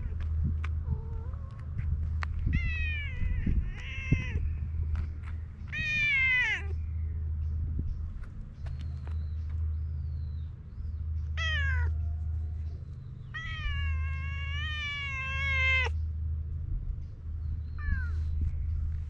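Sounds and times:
low rumble: 0.0s - 19.0s
cat meowing: 2.5s - 4.5s, 5.8s - 6.8s, 11.4s - 12.0s, 13.3s - 16.0s.

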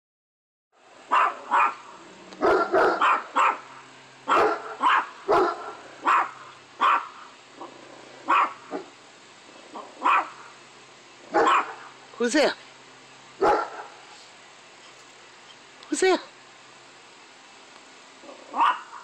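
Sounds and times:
dog barking sharply: 1.1s - 1.8s, 2.4s - 3.7s, 4.3s - 7.2s, 8.3s - 8.9s, 10.0s - 10.4s, 11.4s - 11.9s, 13.4s - 14.0s, 18.5s - 19.0s.

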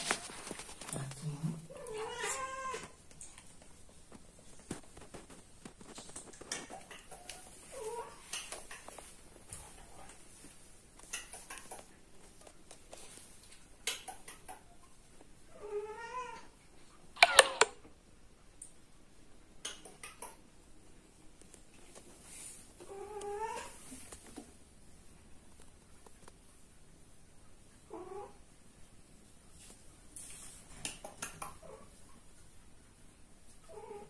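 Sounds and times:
faint rustling of fur: 0.0s - 13.8s, 20.7s - 34.0s.

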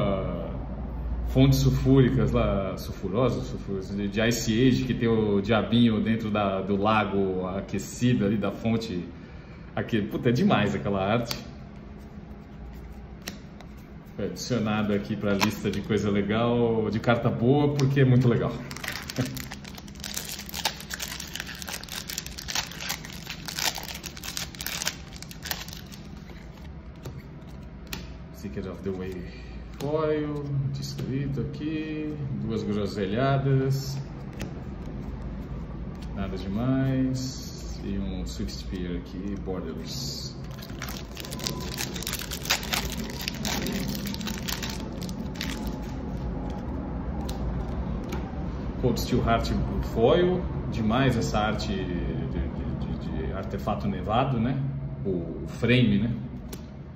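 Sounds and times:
low rumble of street traffic: 0.0s - 56.9s
cards being handled: 11.2s - 16.1s, 17.7s - 31.2s, 33.9s - 36.6s, 38.7s - 48.2s
foil wrapper crinkling and tearing: 18.6s - 27.7s, 40.4s - 46.6s.

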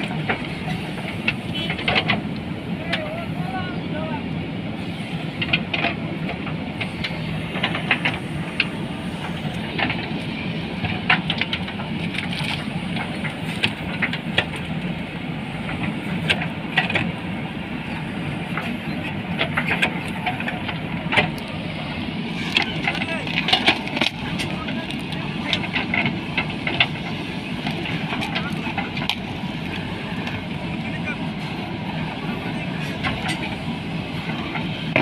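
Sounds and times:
diesel engines running under load: 0.0s - 35.0s.

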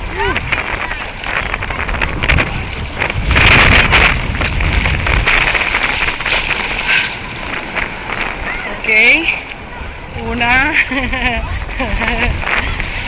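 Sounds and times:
sea water sloshing and splashing: 0.0s - 10.1s
rush of water: 0.0s - 13.0s
wind buffeting microphone: 0.0s - 13.0s.

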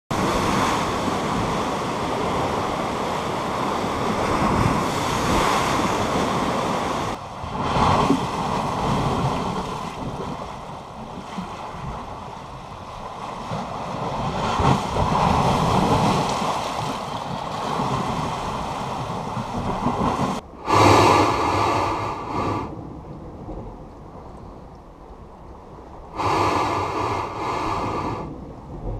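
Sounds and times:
waves washing against rocks: 0.1s - 22.6s, 26.2s - 28.9s
wind buffeting microphone: 0.1s - 28.9s
water rushing through ice crack: 7.1s - 20.4s.

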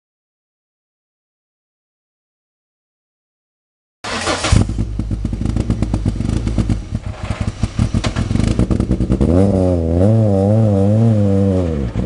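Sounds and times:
rally car engine running rough: 4.1s - 12.0s
loud bang: 4.4s - 9.3s.

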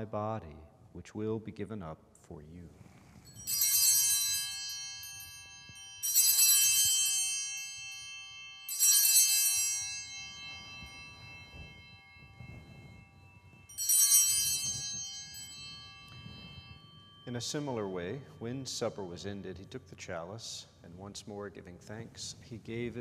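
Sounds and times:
altar bells ringing: 3.1s - 20.0s.

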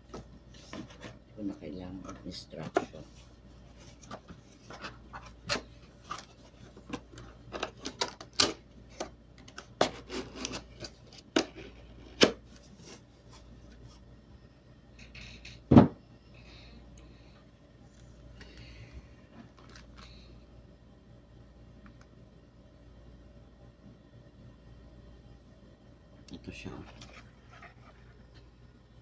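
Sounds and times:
handling packaging and papers: 0.0s - 14.0s, 19.4s - 20.2s.

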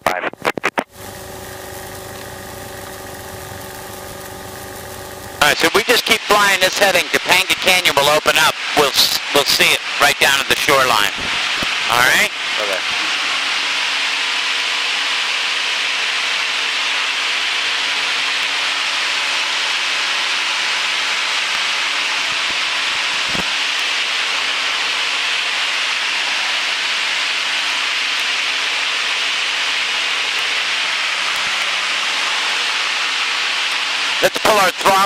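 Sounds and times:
faint engine hum: 0.8s - 5.7s
even cockpit hiss: 33.4s - 35.0s.

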